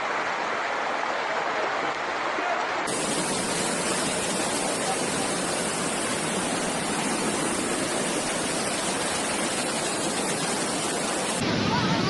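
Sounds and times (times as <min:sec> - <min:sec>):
flood water rushing: 0:00.0 - 0:12.0.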